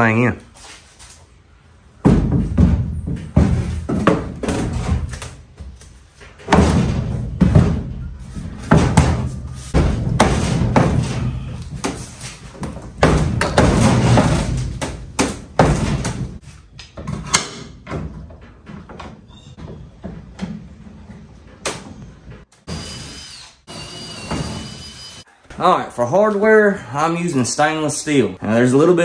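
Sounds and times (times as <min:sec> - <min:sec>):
wood board thudding and knocking: 0:02.0 - 0:05.2, 0:06.4 - 0:16.4.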